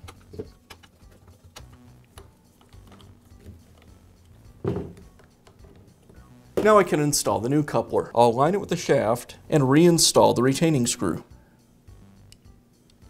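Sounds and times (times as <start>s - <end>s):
knock: 4.6s - 5.0s.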